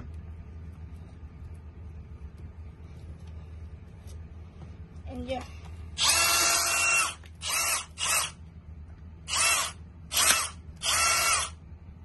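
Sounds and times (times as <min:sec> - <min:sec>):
cordless drill motor whine: 0:06.0 - 0:08.4, 0:09.3 - 0:11.6.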